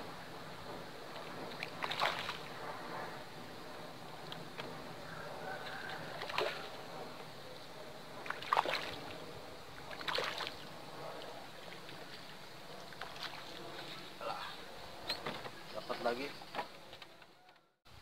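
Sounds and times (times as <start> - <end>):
water lapping: 8.2 - 9.2, 9.8 - 14.7.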